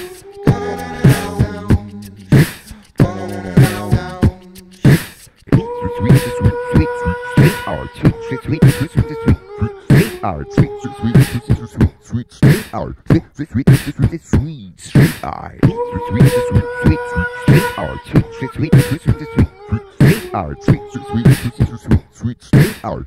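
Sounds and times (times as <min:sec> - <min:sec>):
held sung notes: 0:00.0 - 0:14.0, 0:15.6 - 0:22.4
beatboxed beat: 0:00.0 - 0:23.0.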